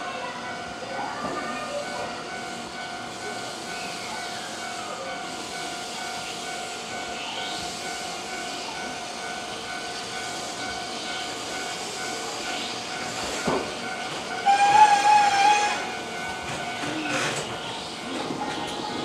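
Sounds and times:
electric train humming: 0.0 - 19.0
train horn blast: 14.4 - 15.9.

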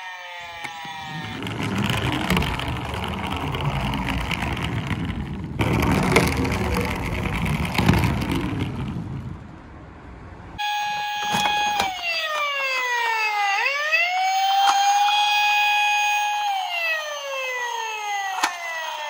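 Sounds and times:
electronic siren tone: 0.0 - 5.1, 10.6 - 19.0
toy wheels rolling on wood: 0.3 - 9.8, 11.2 - 12.4.

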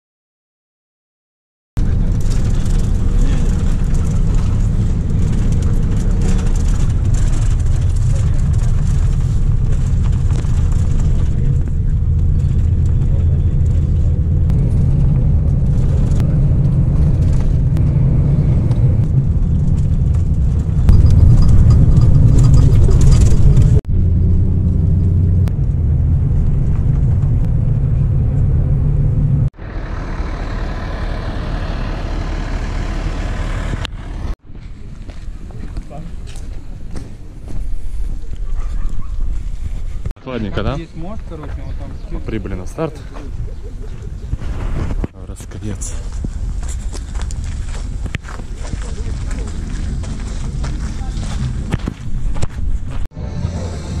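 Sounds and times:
vehicle engine rumble: 1.8 - 54.0.

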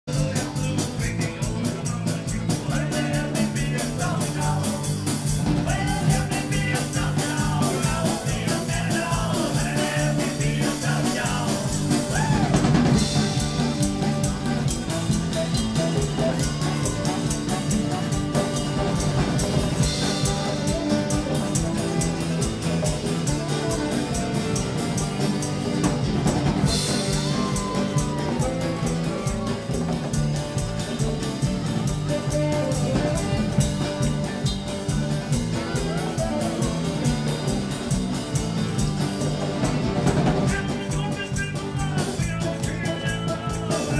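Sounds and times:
acoustic guitar: 0.0 - 43.9
drum kit fast beat: 0.0 - 43.9
person singing: 0.1 - 13.4, 32.0 - 37.2, 40.3 - 43.9.

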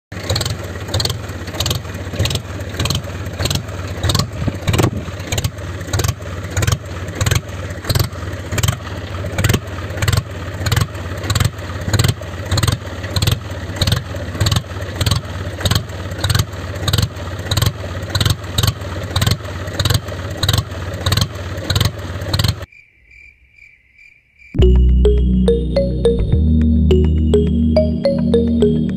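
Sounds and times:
tractor engine chugging: 0.1 - 22.7
faint high tone: 24.6 - 28.9.

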